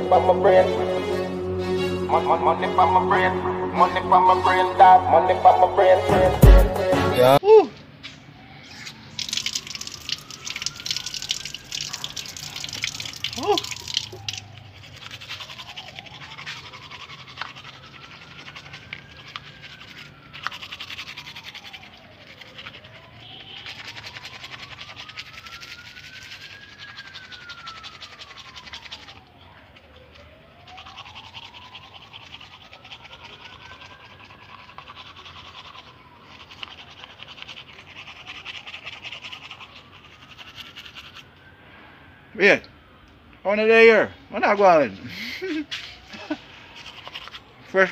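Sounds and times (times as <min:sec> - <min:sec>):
toothbrush scrubbing teeth: 0:08.7 - 0:41.3, 0:46.1 - 0:47.9.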